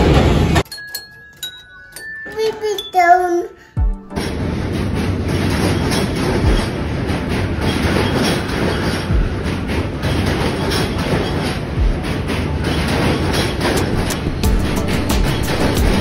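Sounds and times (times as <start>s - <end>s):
train wheels rumbling on rails: 0.0s - 0.6s, 4.1s - 16.0s
sharp clicks of train wheels: 4.1s - 16.0s.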